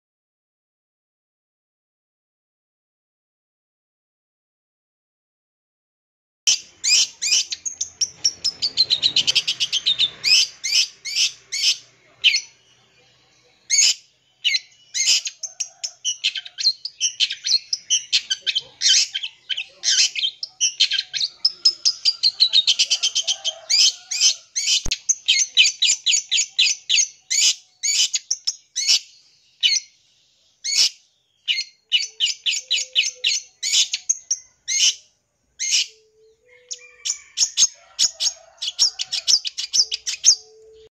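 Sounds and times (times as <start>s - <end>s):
bird song with sharp chirps: 6.5s - 40.9s.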